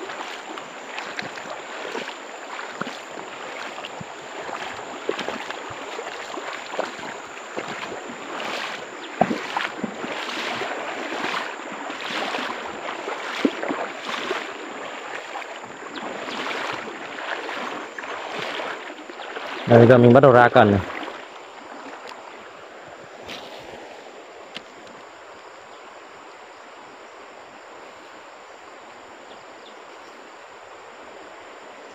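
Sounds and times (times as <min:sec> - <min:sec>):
stream running over stones: 0:00.0 - 0:26.4.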